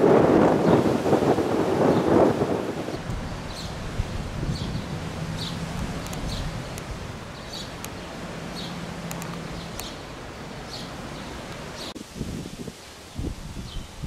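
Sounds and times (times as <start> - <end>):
wind noise: 0.0 - 14.0
low hum: 3.0 - 11.6
sharp clicks: 5.7 - 6.9, 7.7 - 8.0, 9.0 - 10.0.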